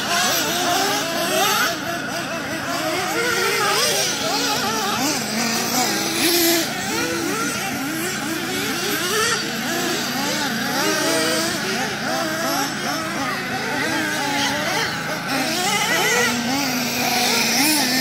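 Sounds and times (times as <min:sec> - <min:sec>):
rc car motors whining: 0:00.0 - 0:18.0.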